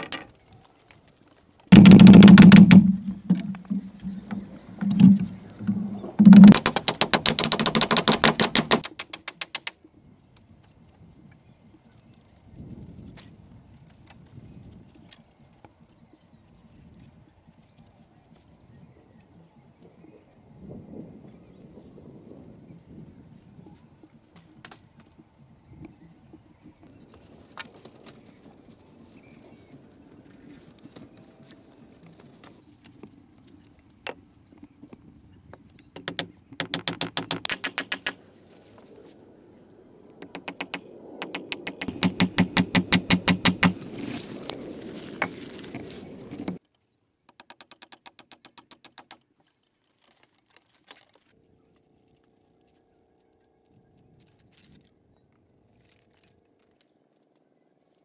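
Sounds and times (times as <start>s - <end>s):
hammers striking bamboo: 1.7s - 5.2s, 6.2s - 9.7s, 36.0s - 38.2s, 40.2s - 43.8s.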